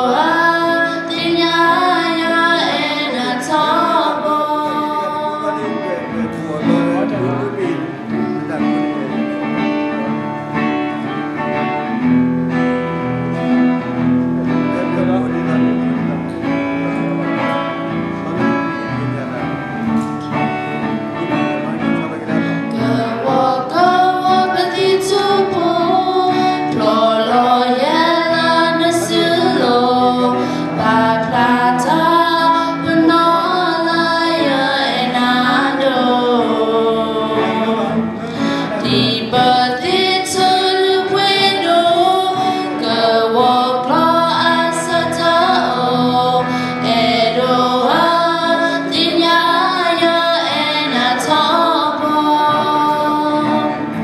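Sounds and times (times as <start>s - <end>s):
people singing: 0.0s - 8.0s, 22.6s - 54.0s
guitar accompaniment: 0.0s - 54.0s.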